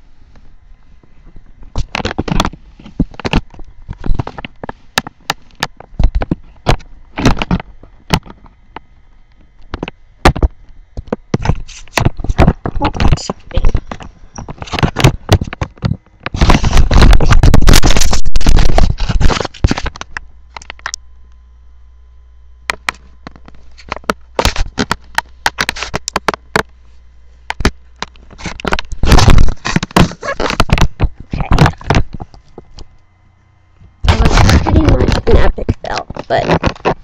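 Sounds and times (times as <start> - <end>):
rubbing against microphone: 11.3 - 20.1, 28.2 - 32.9.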